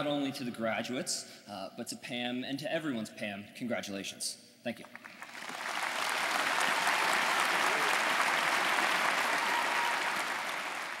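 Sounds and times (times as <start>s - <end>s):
large audience applauding: 4.9s - 11.0s.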